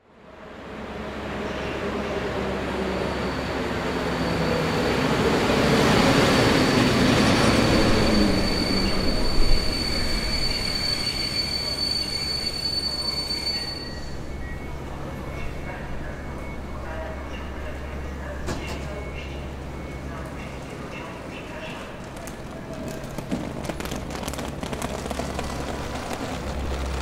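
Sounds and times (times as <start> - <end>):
train coaches rumbling: 0.3 - 27.0
high brake squeal: 2.6 - 16.7.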